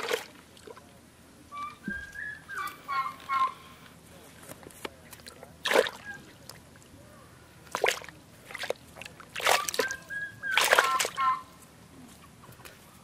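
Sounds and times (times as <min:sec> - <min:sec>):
fish splashing in bucket: 0:00.0 - 0:00.8, 0:05.2 - 0:06.6, 0:07.7 - 0:11.3.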